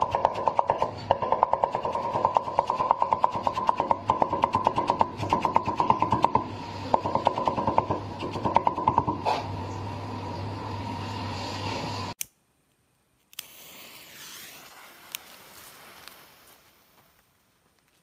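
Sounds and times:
background noise: 12.2s - 18.0s
faint fuse hiss: 12.2s - 18.0s.

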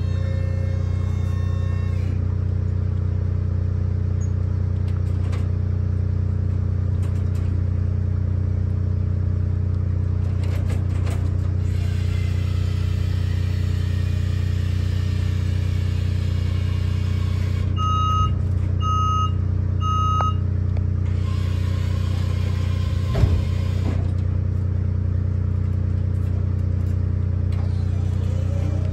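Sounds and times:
low engine hum: 0.0s - 28.9s
short beeps: 17.8s - 20.5s.

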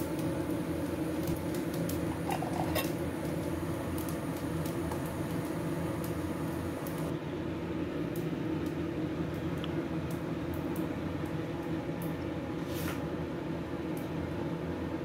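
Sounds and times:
household appliance humming: 0.0s - 7.1s.

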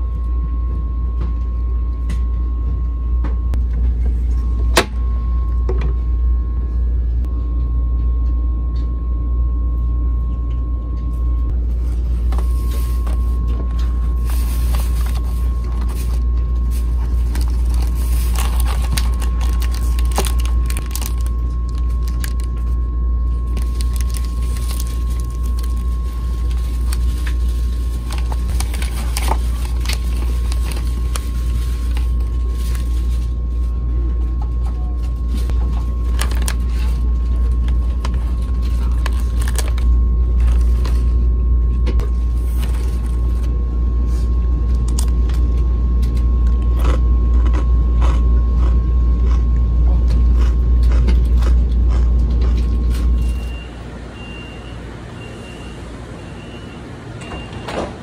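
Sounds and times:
paper packaging crinkling: 11.6s - 33.9s, 35.0s - 41.3s, 42.0s - 43.5s.

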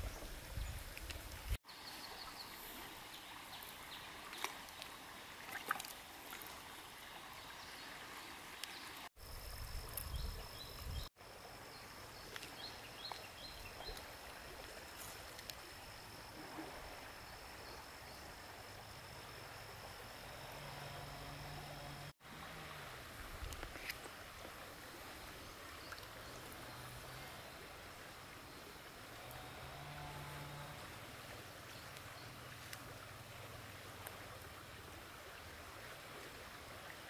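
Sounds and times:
low even hiss: 0.0s - 37.0s
small splashes: 3.5s - 7.1s.

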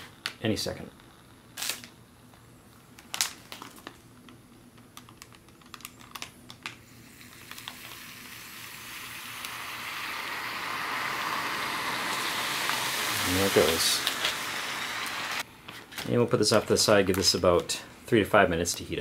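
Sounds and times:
plastic bag crinkling: 3.0s - 4.1s, 5.0s - 6.7s
fizzing hiss of chemical reaction: 6.8s - 15.4s.

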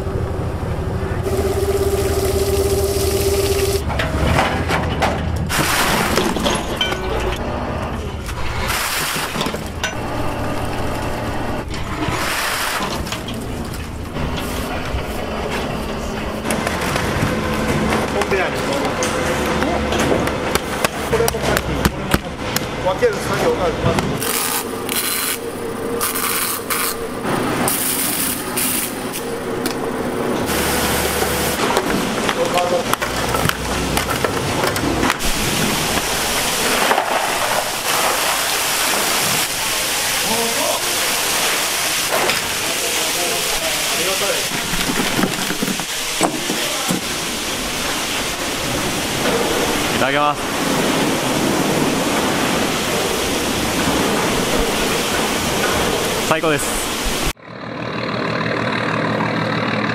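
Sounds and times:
low machine hum: 0.0s - 12.2s, 12.8s - 43.6s
water pouring from a pipe: 1.2s - 3.8s, 5.5s - 6.7s, 8.3s - 15.1s, 30.3s - 33.4s, 34.9s - 57.3s
water pouring off oyster strings: 1.3s - 3.8s.

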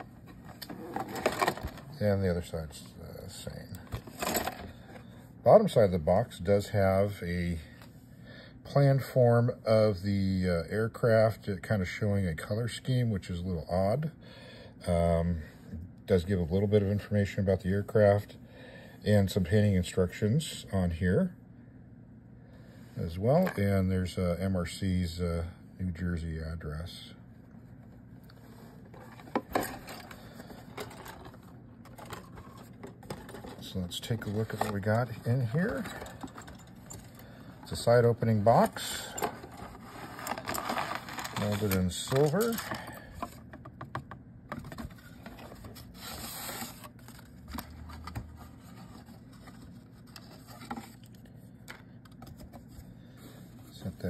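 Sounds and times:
cardboard box rustling and scraping: 0.2s - 1.8s, 28.5s - 36.6s, 44.6s - 51.0s.

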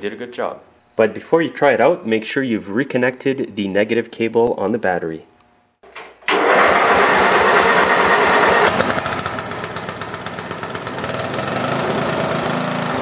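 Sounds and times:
engine cranking and starting: 5.9s - 13.0s.

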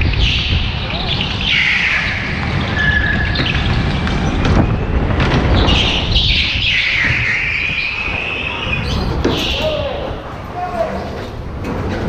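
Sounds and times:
go-kart engine drone: 0.0s - 12.0s
go-kart tyres squealing: 0.0s - 12.0s.

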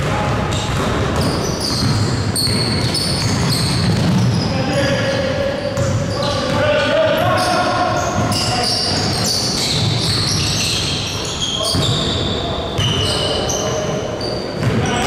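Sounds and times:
basketball bouncing on court: 0.0s - 4.4s, 5.7s - 10.9s, 11.6s - 13.3s, 14.6s - 15.0s
sneakers squeaking on floor: 0.0s - 15.0s
players' voices: 3.7s - 15.0s.

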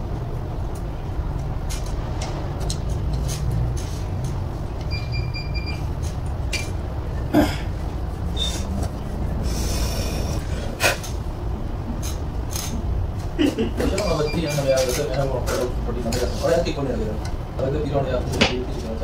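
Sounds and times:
low steady rumble: 0.0s - 13.7s.

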